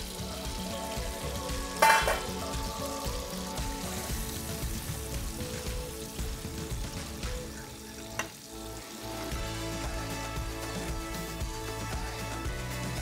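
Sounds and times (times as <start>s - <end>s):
fish sizzling in a frying pan: 0.0s - 13.0s.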